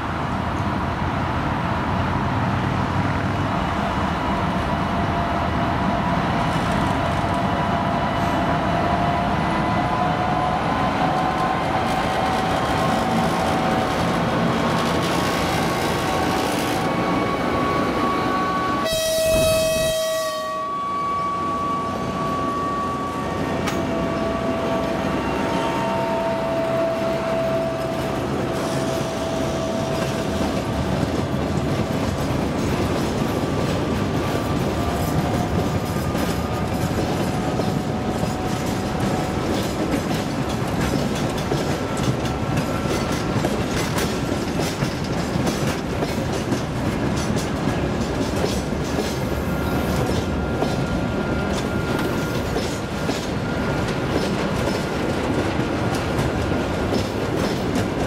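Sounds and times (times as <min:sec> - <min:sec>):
train wheels rumbling: 0:00.0 - 0:58.0
wheels clicking over rail joints: 0:29.8 - 0:58.0.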